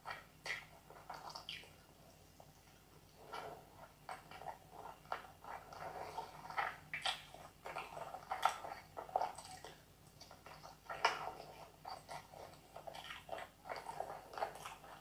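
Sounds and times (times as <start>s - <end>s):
wet chewing: 3.3s - 15.0s.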